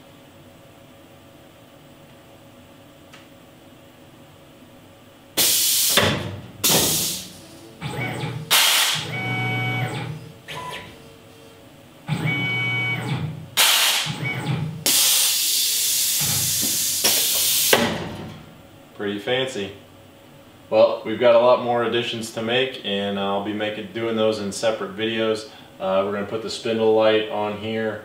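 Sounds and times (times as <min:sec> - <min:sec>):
compressed air hissing: 0:05.4 - 0:07.4, 0:08.5 - 0:09.0, 0:13.6 - 0:14.1, 0:14.8 - 0:17.8
motor whine and hum: 0:05.4 - 0:18.7.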